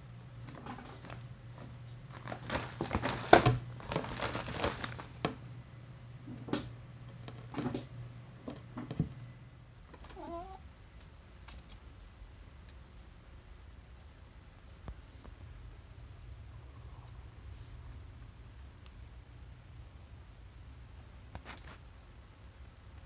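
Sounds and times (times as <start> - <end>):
plastic sheeting crinkling: 0.9 - 5.2.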